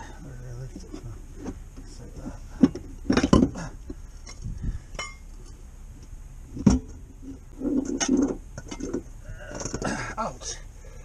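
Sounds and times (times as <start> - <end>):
metal clinks and knocks: 2.6 - 5.3.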